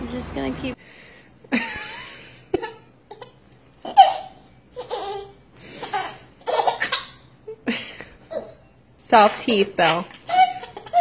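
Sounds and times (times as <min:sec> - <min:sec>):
baby laughing: 0:02.6 - 0:07.3, 0:08.2 - 0:08.6, 0:10.1 - 0:11.0.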